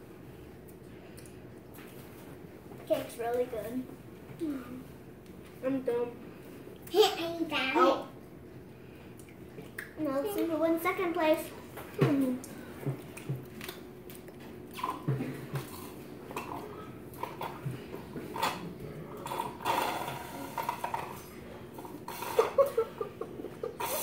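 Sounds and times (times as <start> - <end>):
children eating with smacks: 0.4 - 3.5, 8.0 - 24.0
plates scraping on table: 19.3 - 21.2.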